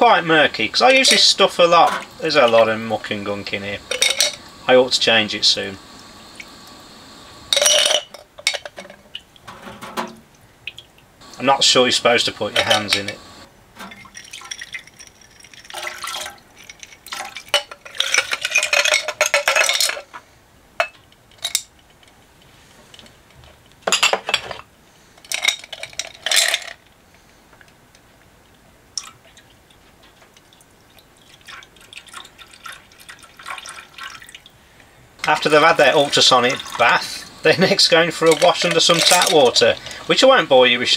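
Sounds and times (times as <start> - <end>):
liquid splashing and pouring: 0.8 - 13.2, 13.8 - 19.3, 29.0 - 34.6, 35.2 - 40.2
clinks of glass and parts: 3.8 - 4.5, 7.5 - 10.2, 12.5 - 20.2, 20.8 - 22.1, 23.8 - 26.8, 37.6 - 39.7.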